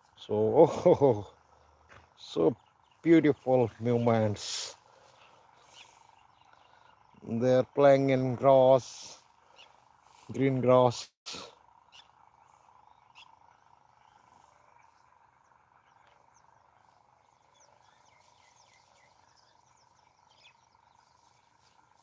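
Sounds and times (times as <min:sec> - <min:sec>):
faint steady hum: 0:00.0 - 0:10.4.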